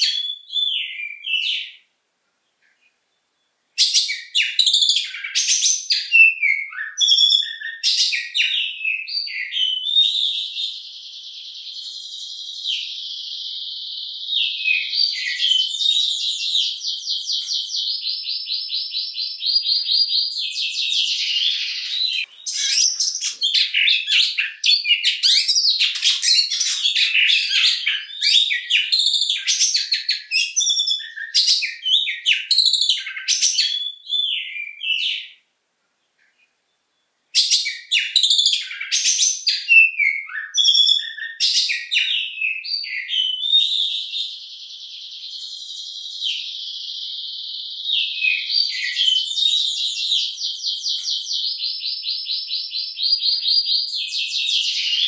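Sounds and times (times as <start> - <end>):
bird singing whistles: 0.0 - 1.8, 3.8 - 35.4, 37.3 - 55.0.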